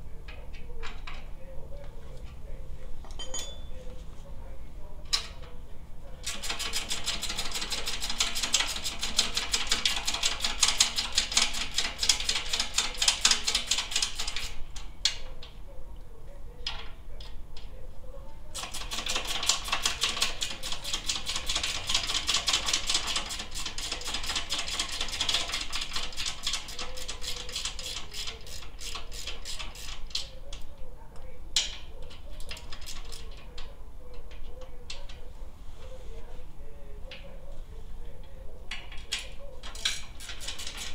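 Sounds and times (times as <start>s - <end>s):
ratchet wrench clicking: 18.8s - 30.3s.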